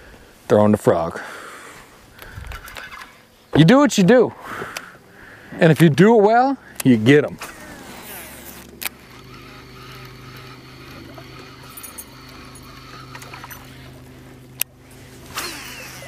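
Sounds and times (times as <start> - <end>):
electric motor humming: 6.6 - 16.0.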